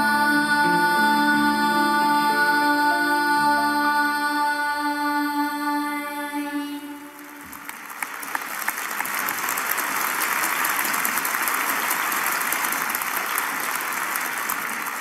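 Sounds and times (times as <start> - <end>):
children's choir singing: 0.0 - 7.7
audience applause: 7.2 - 15.0.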